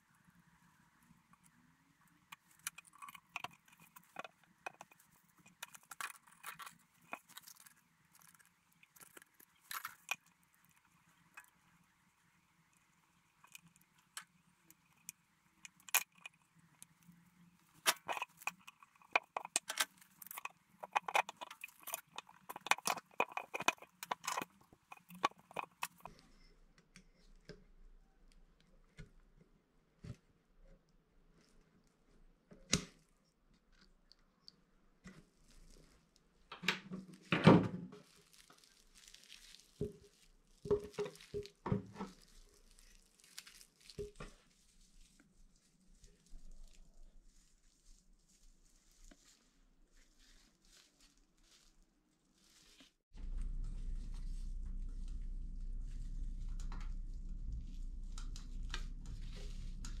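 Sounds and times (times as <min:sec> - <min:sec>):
plastic wrap crinkling: 0:02.3 - 0:11.8, 0:13.3 - 0:26.2, 0:38.0 - 1:00.0
faint steady hum: 0:53.2 - 1:00.0.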